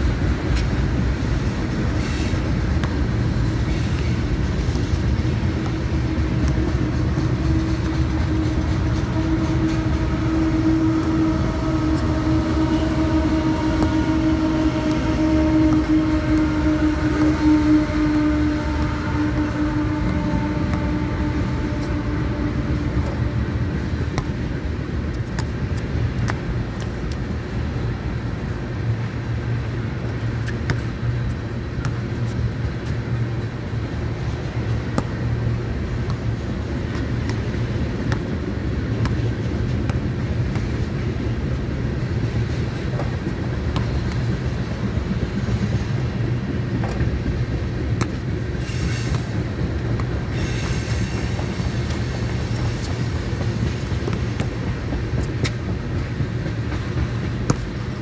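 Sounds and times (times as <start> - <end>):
sharp clicks of train: 0.0 - 58.0
train rumbling past: 0.0 - 58.0
humming tone with overtones: 6.0 - 24.4.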